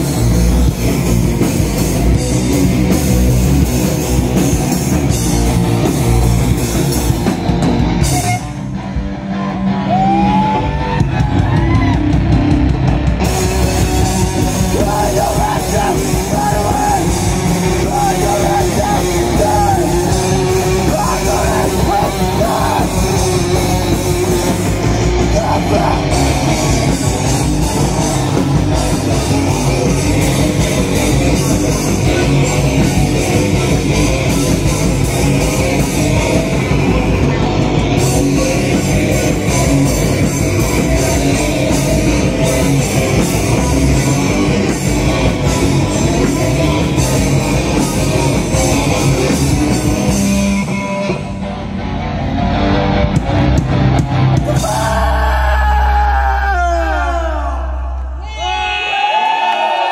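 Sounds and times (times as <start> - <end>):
distorted electric guitars: 0.0 - 59.9
drum kit: 0.0 - 59.9
electric bass: 0.0 - 59.9.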